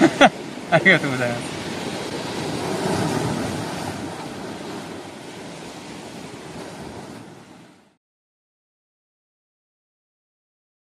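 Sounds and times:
wind buffeting microphone: 0:00.0 - 0:07.9
waves breaking on rocks: 0:00.0 - 0:08.0.

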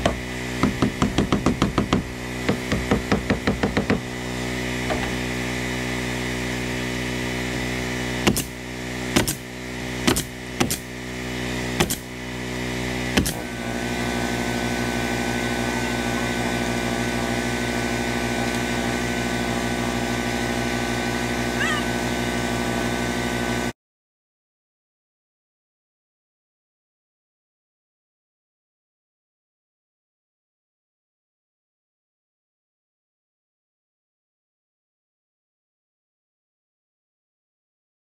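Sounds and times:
air compressor hum: 0:00.0 - 0:23.6
pneumatic nail gun shots: 0:08.2 - 0:11.0, 0:11.7 - 0:12.2, 0:13.1 - 0:13.6.

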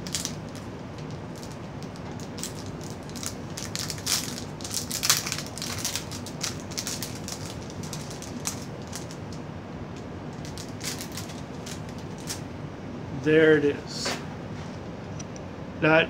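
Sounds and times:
packaging crinkling: 0:00.0 - 0:09.4, 0:10.3 - 0:12.5.

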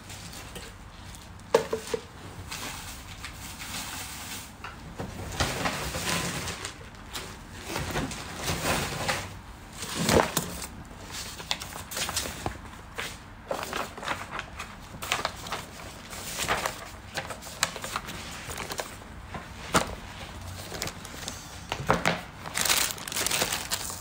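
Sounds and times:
rustling and knocking objects: 0:00.2 - 0:04.1, 0:17.8 - 0:24.0.

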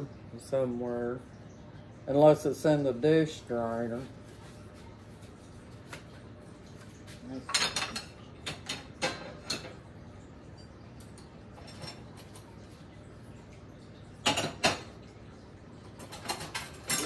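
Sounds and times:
cutlery and dishes clattering: 0:07.4 - 0:09.9, 0:10.5 - 0:12.5, 0:14.2 - 0:14.9, 0:15.9 - 0:17.0.

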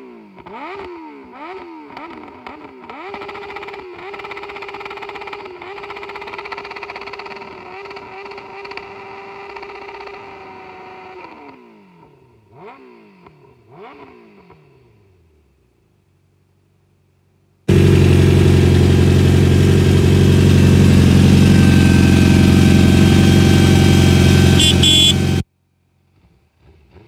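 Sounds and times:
engine idling: 0:17.7 - 0:25.4
motorcycle engine on rev limiter: 0:17.7 - 0:25.4
throttle blips: 0:24.6 - 0:25.2.

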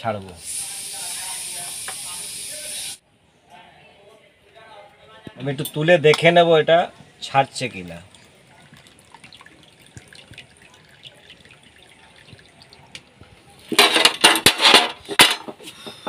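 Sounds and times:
water dripping into metal pan: 0:07.6 - 0:13.3.

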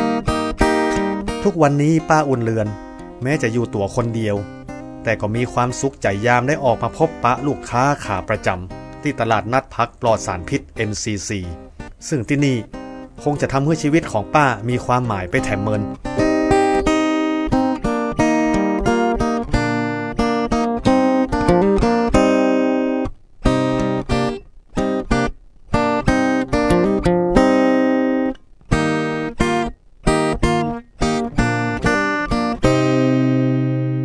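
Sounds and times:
plucked string instrument music: 0:00.0 - 0:34.0.

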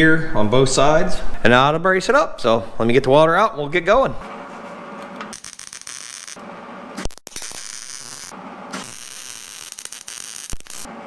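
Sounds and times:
welder arc crackling: 0:05.0 - 0:11.0.

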